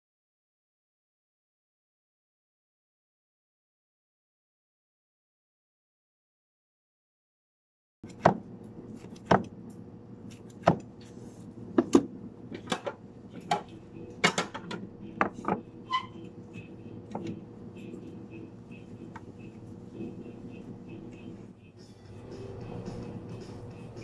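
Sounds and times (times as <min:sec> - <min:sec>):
steady appliance hum: 0:08.0 - 0:24.0
utensils and containers clattering: 0:12.6 - 0:15.6.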